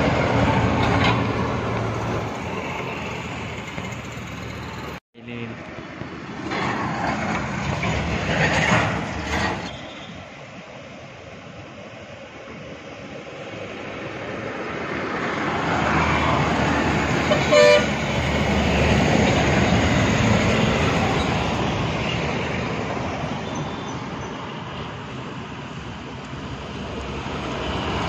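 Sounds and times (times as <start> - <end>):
bus diesel engine passing: 0.0 - 11.0, 12.5 - 28.0
bus horn blast: 17.2 - 18.0.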